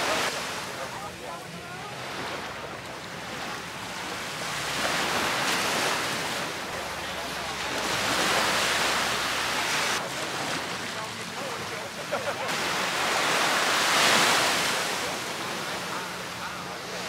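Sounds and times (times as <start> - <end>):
small waves breaking on beach: 0.0 - 17.0.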